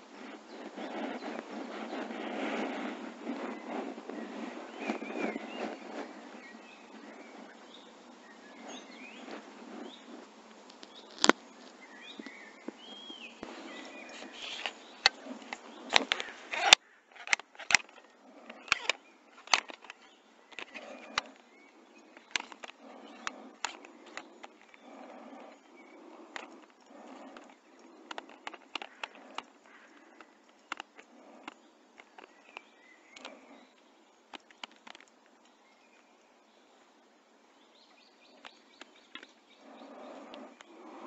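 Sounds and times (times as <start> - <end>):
birds chirping faintly: 0.0 - 41.0
outdoor background noise: 0.0 - 41.0
handling clicks and knocks: 14.2 - 21.4, 22.1 - 24.9, 26.2 - 33.4.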